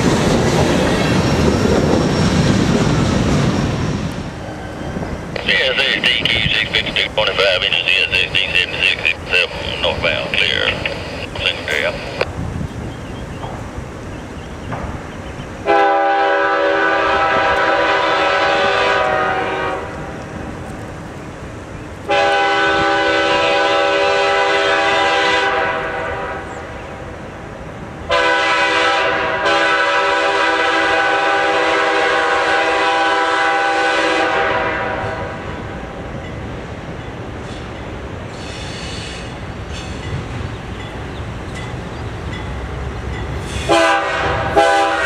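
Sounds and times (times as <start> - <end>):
locomotive air horn blasts: 15.6 - 20.1, 22.1 - 26.5, 28.1 - 35.4, 43.5 - 45.0.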